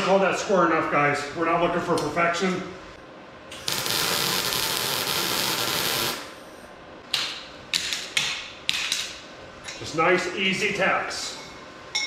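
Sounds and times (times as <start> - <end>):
welder hissing: 3.6 - 6.6.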